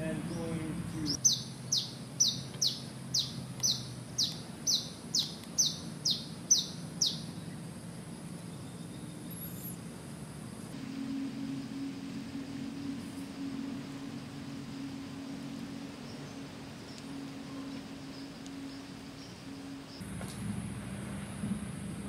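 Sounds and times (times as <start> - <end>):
bird calling high falling notes: 10.8 - 20.0.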